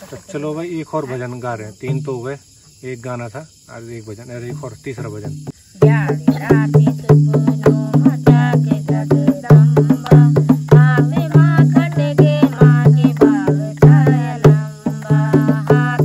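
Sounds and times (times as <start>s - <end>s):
barrel drum beating: 5.2s - 16.0s
women singing: 5.8s - 16.0s.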